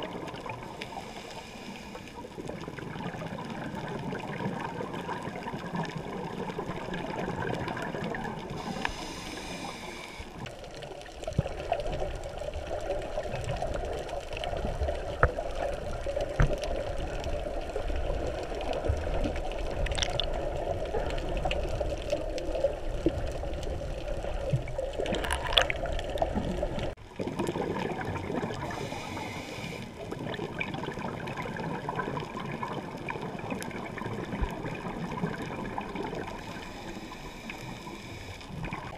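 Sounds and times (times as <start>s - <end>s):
muffled underwater gurgling: 0.0s - 38.9s
faint clicks: 7.6s - 26.9s.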